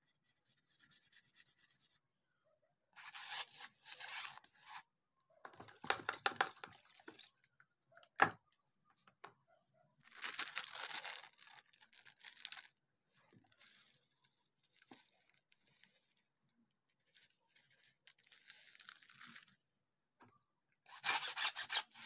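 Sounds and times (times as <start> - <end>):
handling noises: 5.4 - 7.3
packet crinkling: 10.0 - 12.7, 18.1 - 19.5.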